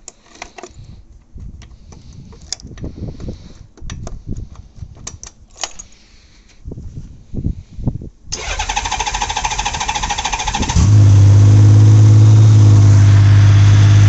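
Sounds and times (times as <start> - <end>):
keys rattling: 5.2 - 6.0.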